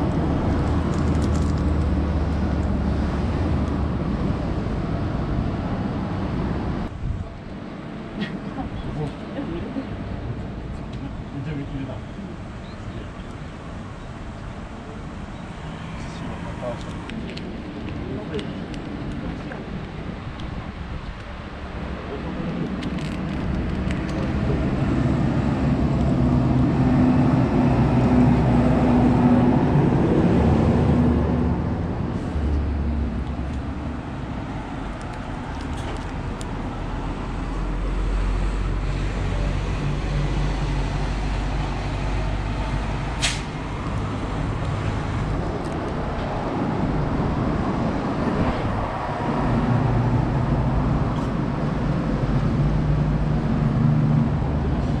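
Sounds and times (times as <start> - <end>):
vehicles passing: 0.0 - 55.0
sharp click: 43.2 - 43.5.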